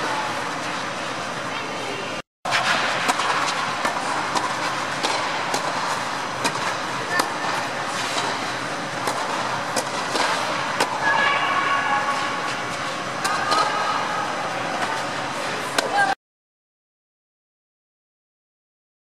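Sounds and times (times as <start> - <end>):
tennis balls struck and bouncing: 2.5 - 11.0
voices: 6.9 - 8.2, 10.3 - 16.2.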